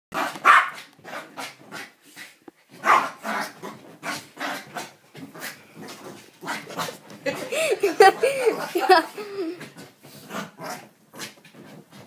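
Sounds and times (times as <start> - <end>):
small dog barking angrily: 0.2 - 1.5, 2.8 - 4.9.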